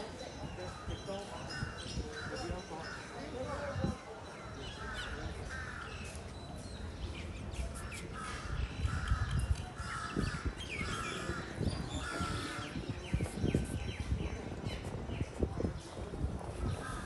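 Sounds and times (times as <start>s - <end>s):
crows cawing: 8.2s - 12.8s.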